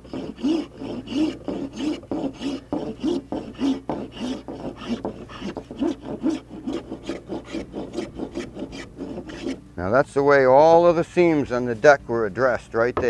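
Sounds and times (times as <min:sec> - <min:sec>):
hand plane shaving wood: 0:00.0 - 0:09.6.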